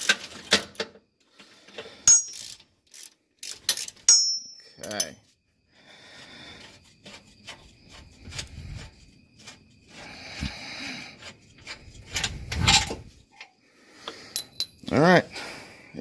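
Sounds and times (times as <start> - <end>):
metal and rubber parts clicking: 0.0 - 5.2, 11.2 - 15.0
loud scrape: 6.4 - 13.2.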